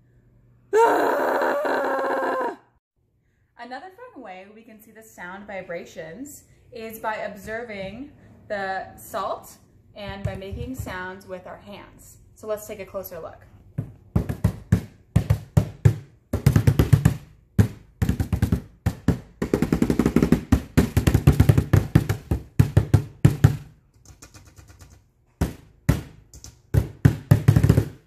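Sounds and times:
hands drumming on tabletop: 0:13.8 - 0:23.7.

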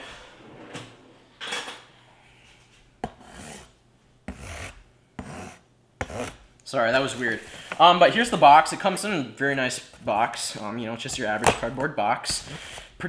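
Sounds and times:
knife scraping over cardboard: 0:02.4 - 0:06.4.

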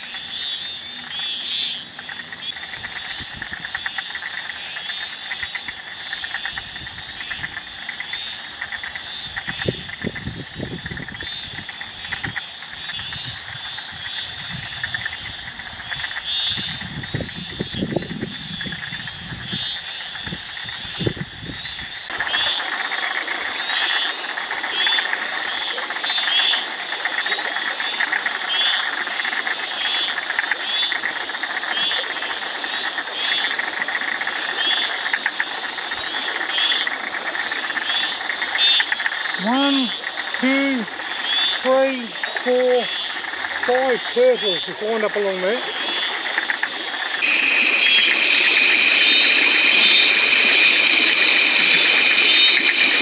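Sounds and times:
frogs calling: 0:00.0 - 0:53.0
frog trill: 0:29.7 - 0:53.0.

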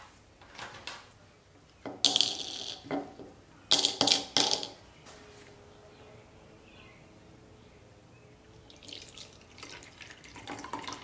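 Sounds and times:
small parts clattering in plastic cup: 0:02.0 - 0:03.1.

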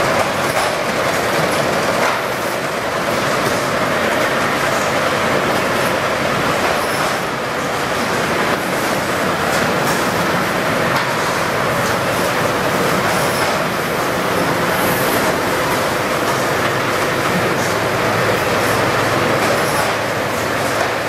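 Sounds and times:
conveyor machinery clattering: 0:00.0 - 0:21.0.

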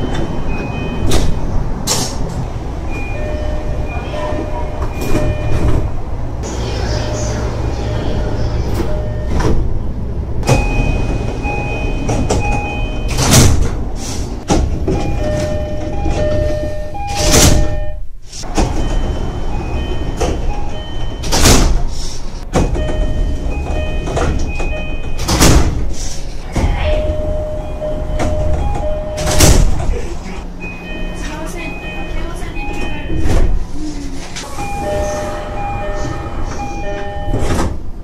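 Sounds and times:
two-pitch electronic door chime: 0:02.9 - 0:05.6, 0:08.8 - 0:09.5, 0:10.4 - 0:13.4, 0:14.9 - 0:18.0, 0:18.8 - 0:21.5, 0:22.7 - 0:25.4, 0:26.9 - 0:29.6, 0:30.6 - 0:33.5, 0:34.5 - 0:37.6
hiss of air from doors shutting: 0:13.9 - 0:14.5, 0:21.6 - 0:22.4, 0:25.6 - 0:26.4.

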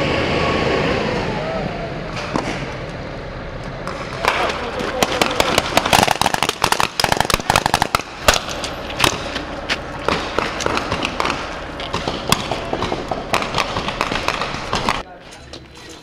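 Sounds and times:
automatic gunfire bursts: 0:05.0 - 0:09.2, 0:10.1 - 0:15.0.

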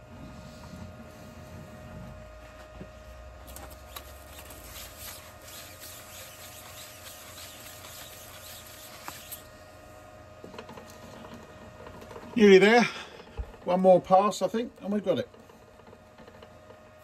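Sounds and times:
faint steady hum: 0:00.0 - 0:17.0
gloved hands rustling and scratching: 0:03.5 - 0:09.5.

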